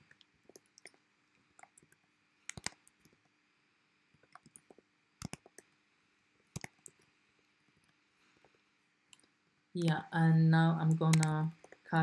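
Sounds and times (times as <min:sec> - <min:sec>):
computer keyboard typing: 0:01.6 - 0:03.2, 0:04.3 - 0:05.7, 0:06.5 - 0:07.0, 0:10.9 - 0:11.8.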